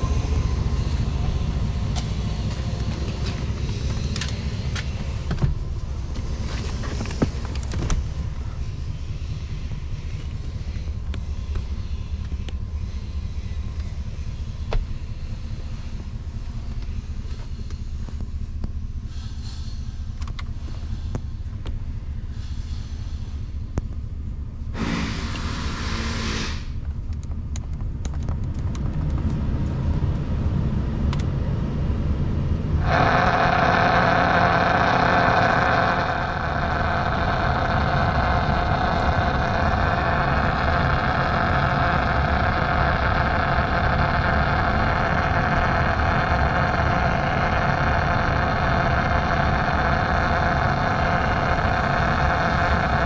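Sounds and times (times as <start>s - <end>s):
diesel engine idling: 0.0s - 28.6s, 29.2s - 53.0s
short hiss: 24.8s - 26.8s
radio hiss and hum: 32.8s - 53.0s.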